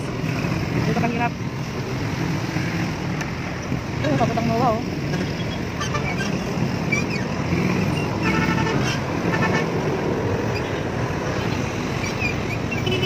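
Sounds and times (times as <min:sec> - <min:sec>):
traffic rumble: 0:00.0 - 0:13.0
vehicle horn honking: 0:08.2 - 0:09.7.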